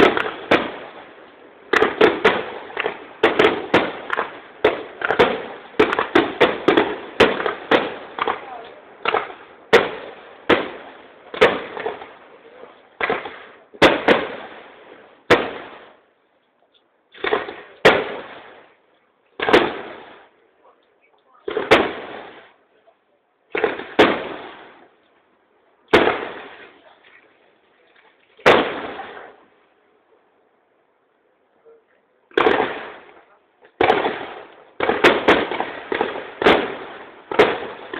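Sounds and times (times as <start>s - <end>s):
firework shells bursting: 0.0s - 12.2s, 13.0s - 16.1s, 16.7s - 18.8s, 32.3s - 37.9s.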